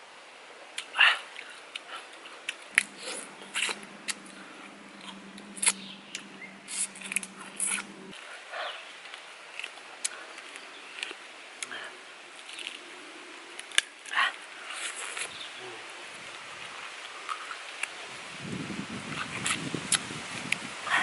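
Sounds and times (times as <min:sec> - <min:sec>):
person chewing with wet smacks: 0:00.8 - 0:08.2
low hum: 0:02.6 - 0:08.2.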